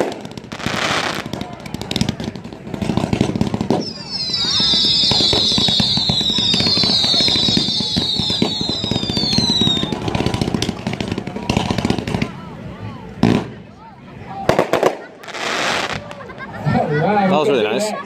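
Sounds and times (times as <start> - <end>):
whistling firework shots: 0.0 - 12.2
firework crackles and pops: 0.0 - 12.4, 14.4 - 16.5.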